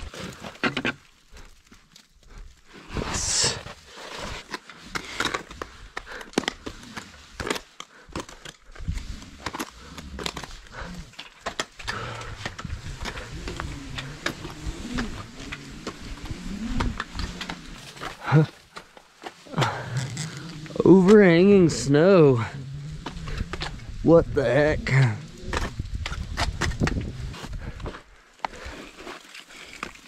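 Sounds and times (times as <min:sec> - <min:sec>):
gear clicking and scraping: 0:00.0 - 0:30.0
heavy breathing: 0:02.2 - 0:21.6, 0:27.2 - 0:29.8.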